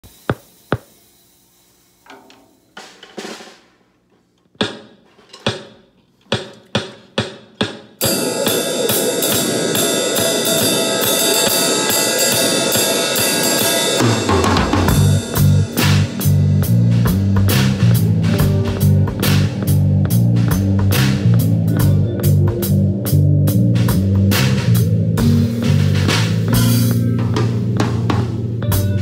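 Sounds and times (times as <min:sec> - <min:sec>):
drum kit playing with cymbals: 0:00.0 - 0:03.9, 0:04.6 - 0:29.0.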